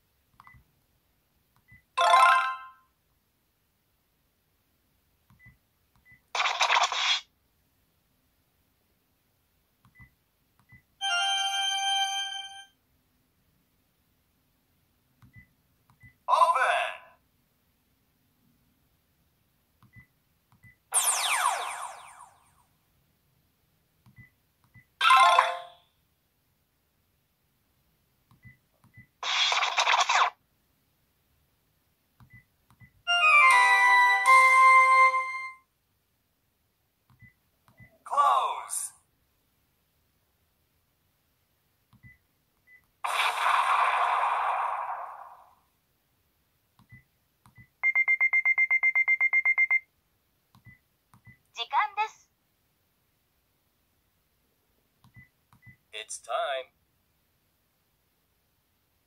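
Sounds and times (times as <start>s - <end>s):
soft keypad clicks: 0.3s - 0.6s, 55.0s - 55.8s
phone speaker synth jingle: 11.0s - 12.7s.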